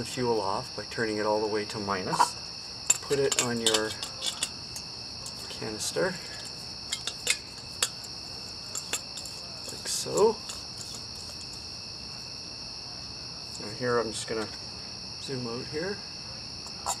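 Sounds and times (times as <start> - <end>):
crickets trilling: 0.0 - 17.0
small metallic clicks: 2.9 - 5.4.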